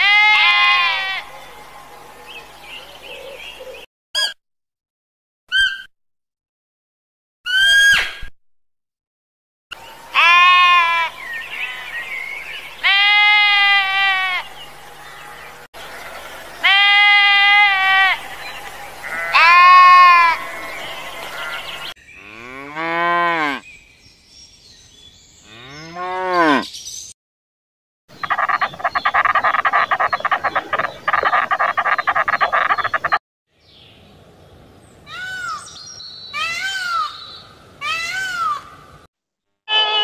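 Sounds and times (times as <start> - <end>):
goat bleating: 0.0 - 1.2, 10.2 - 11.1, 12.8 - 14.4, 16.0 - 18.2, 19.0 - 20.4
peacock calls: 10.1 - 21.9, 28.1 - 33.2, 35.1 - 38.8
rapid chirring: 28.1 - 33.2
long low animal calls: 28.2 - 33.2.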